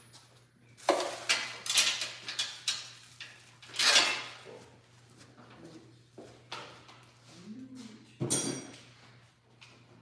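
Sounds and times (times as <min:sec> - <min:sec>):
metal parts rattling: 0:01.2 - 0:04.4
metal parts clanking: 0:01.3 - 0:04.4.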